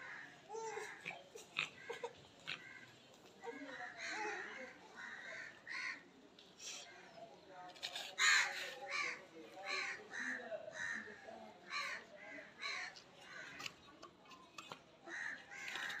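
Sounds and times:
crows cawing: 0:03.6 - 0:06.0, 0:08.2 - 0:13.7, 0:15.1 - 0:16.0.

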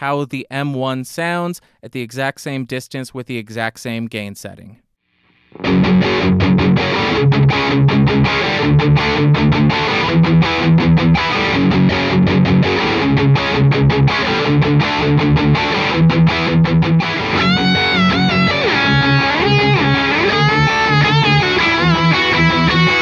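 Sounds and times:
electric guitar riff: 0:05.3 - 0:23.0.

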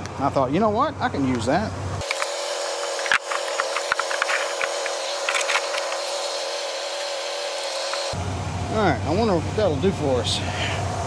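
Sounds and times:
steady hum: 0:01.0 - 0:11.0
rubber mat scraping on concrete: 0:02.9 - 0:06.1.

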